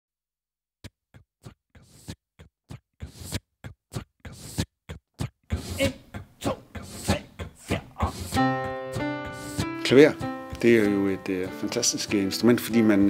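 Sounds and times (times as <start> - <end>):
person beatboxing into microphone: 1.1 - 10.3.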